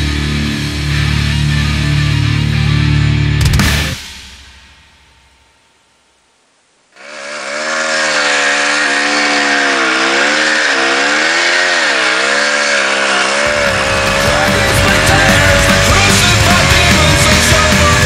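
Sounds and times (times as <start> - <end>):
rock music: 0.0 - 5.6, 13.0 - 18.0
motorcycle engine revving: 6.9 - 18.0.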